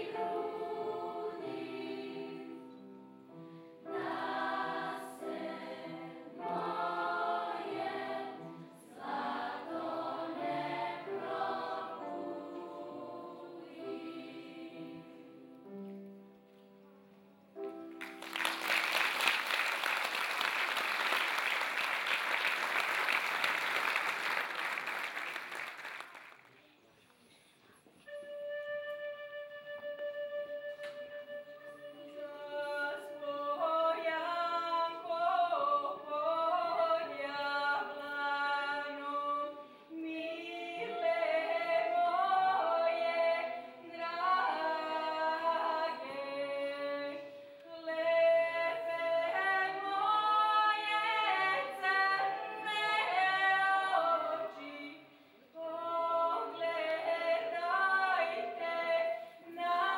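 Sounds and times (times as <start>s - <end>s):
vocal ensemble singing: 0.0s - 2.9s, 3.8s - 15.4s, 32.4s - 59.9s
woman singing lead: 32.0s - 59.9s.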